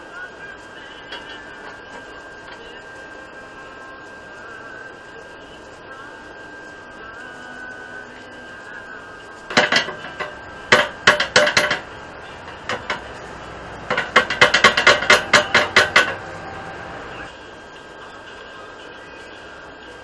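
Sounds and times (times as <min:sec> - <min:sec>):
hammer tapping metal tubing: 0:09.5 - 0:17.0.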